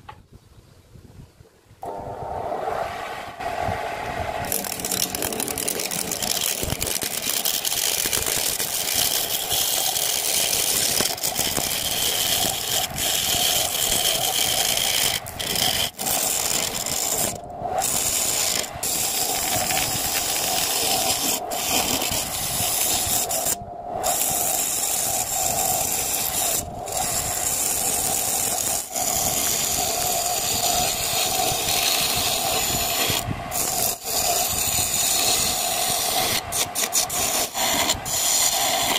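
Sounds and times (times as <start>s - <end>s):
lathe motor hum: 1.8s - 27.4s
turning tool scraping wood: 4.4s - 38.9s.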